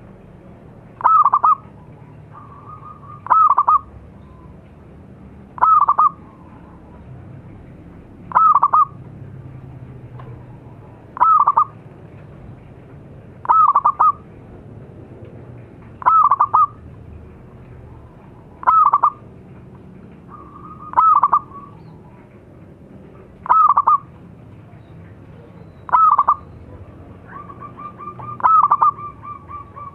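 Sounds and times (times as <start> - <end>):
dove cooing: 1.0 - 4.0, 5.6 - 7.0, 8.3 - 9.0, 10.4 - 11.8, 13.4 - 14.3, 16.0 - 16.8, 17.8 - 19.3, 20.2 - 22.3, 23.2 - 24.2, 25.4 - 29.9.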